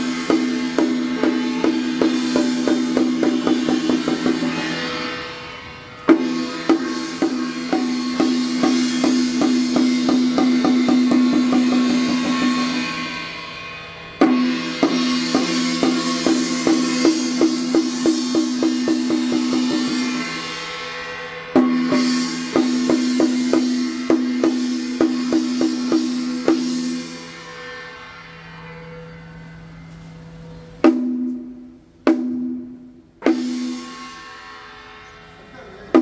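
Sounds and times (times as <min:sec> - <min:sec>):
hand drum beating: 0:00.0 - 0:04.8, 0:06.1 - 0:12.7, 0:30.8 - 0:33.8
ringing gong tone: 0:00.0 - 0:32.0.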